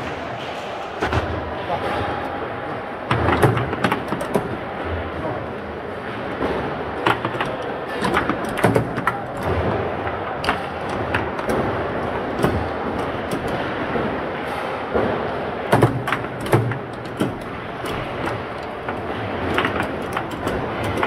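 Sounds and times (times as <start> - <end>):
steady background noise: 0.0 - 21.0
foosball clacks and knocks: 3.1 - 4.8, 6.1 - 21.0.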